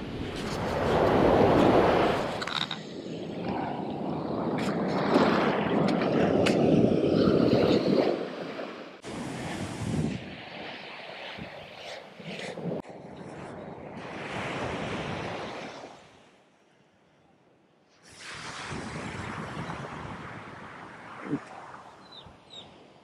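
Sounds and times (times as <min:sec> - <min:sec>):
surf rushing: 0:00.0 - 0:12.8, 0:18.1 - 0:22.0
wind on microphone: 0:00.0 - 0:16.2, 0:18.0 - 0:23.0.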